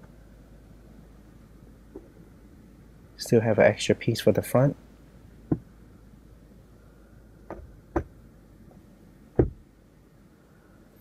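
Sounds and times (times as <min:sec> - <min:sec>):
sun visor knocks and clicks: 0:05.5 - 0:05.7, 0:07.5 - 0:08.2, 0:09.4 - 0:09.6.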